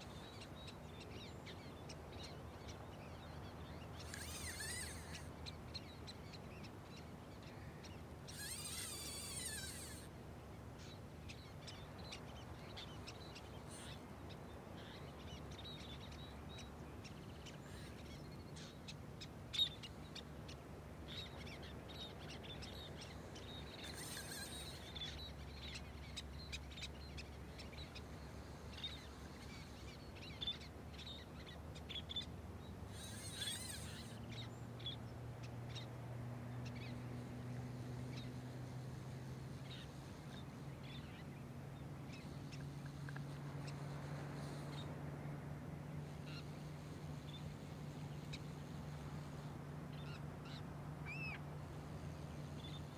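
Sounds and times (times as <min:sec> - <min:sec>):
birds chirping: 0:00.0 - 0:52.9
faint low hum: 0:00.0 - 0:52.9
rasping bird calls: 0:03.7 - 0:06.4, 0:07.0 - 0:10.1, 0:21.2 - 0:28.0, 0:32.9 - 0:34.5.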